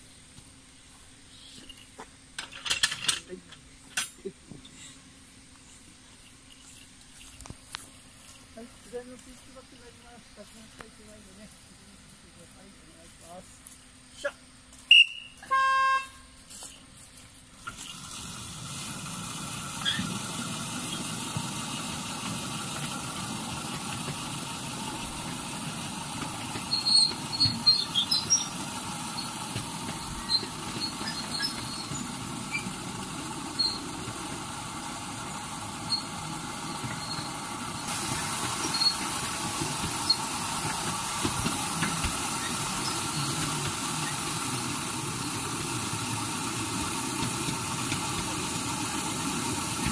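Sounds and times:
miniature train wheels rumbling: 0:02.4 - 0:04.3, 0:17.5 - 0:49.9
brief whistle-like tone: 0:14.9 - 0:16.3.

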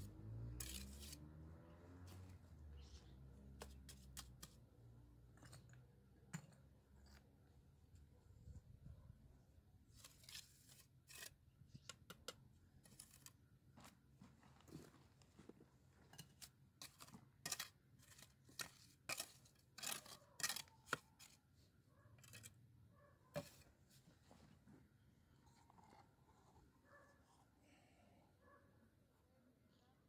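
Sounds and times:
trowel scraping on stones and mortar: 0:00.0 - 0:07.3, 0:09.9 - 0:13.5, 0:15.9 - 0:21.5, 0:22.2 - 0:22.6, 0:23.3 - 0:24.0.

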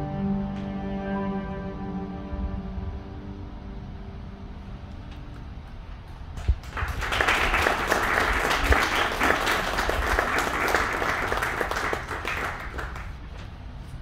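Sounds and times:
audience applauding: 0:06.4 - 0:13.4.

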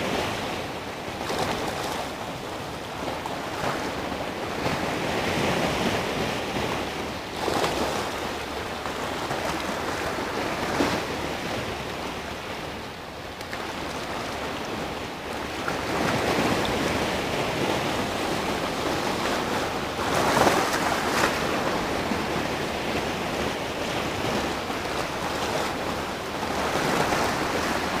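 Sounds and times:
sea surf breaking on rocks: 0:13.4 - 0:28.0.

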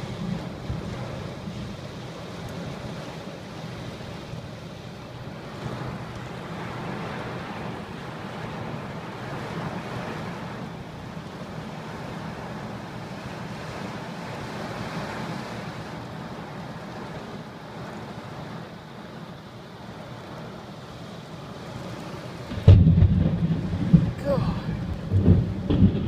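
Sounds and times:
heavy rain heard from car: 0:00.0 - 0:26.0.

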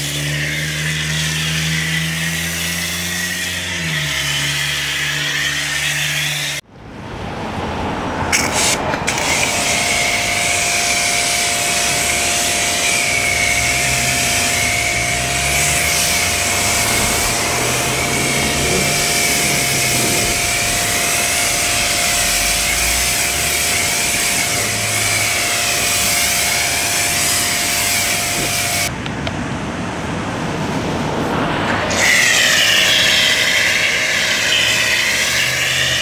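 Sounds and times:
pressure washer machine whine: 0:00.0 - 0:06.6, 0:08.3 - 0:29.0, 0:31.2 - 0:36.0
water spraying hiss: 0:08.4 - 0:28.9.

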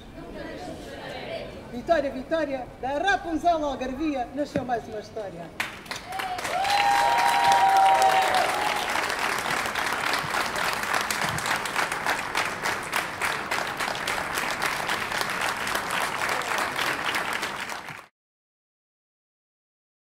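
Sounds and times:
audience applauding: 0:05.6 - 0:18.1.

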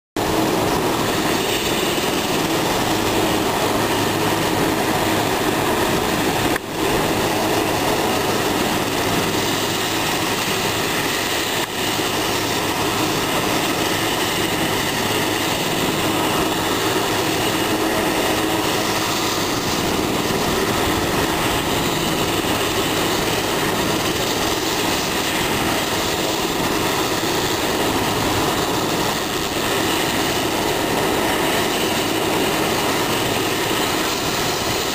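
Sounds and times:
helicopter engine and rotors: 0:00.2 - 0:34.9.

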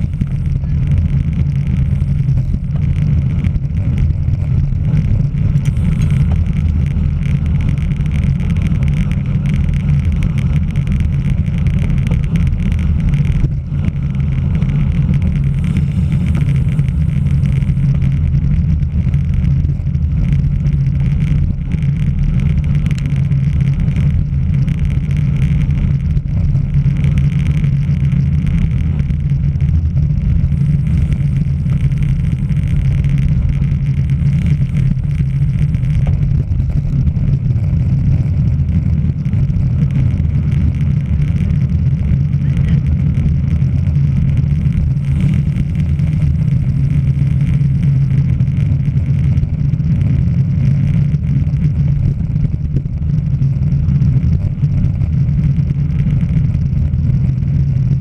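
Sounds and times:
wind buffeting: 0:00.0 - 0:41.9
road vibration rumble: 0:00.0 - 0:58.0.

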